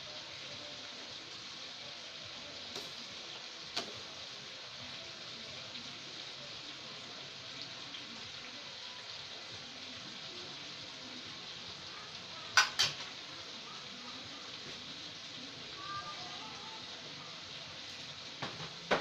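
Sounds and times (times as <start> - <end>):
soup simmering hiss: 0.0 - 19.0.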